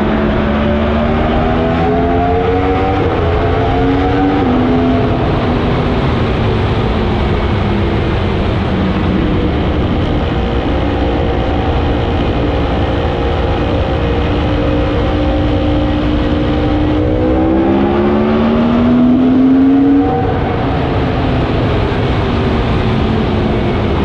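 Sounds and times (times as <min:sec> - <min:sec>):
heavy wind rush: 0:00.0 - 0:24.0
motorcycle engine accelerating: 0:00.0 - 0:24.0.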